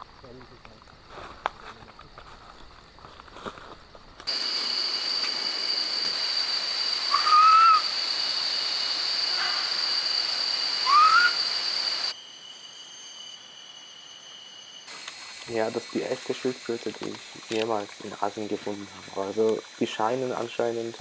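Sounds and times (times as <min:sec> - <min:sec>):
insects droning: 0:00.0 - 0:21.0
bird whistling upward notes: 0:07.0 - 0:15.0.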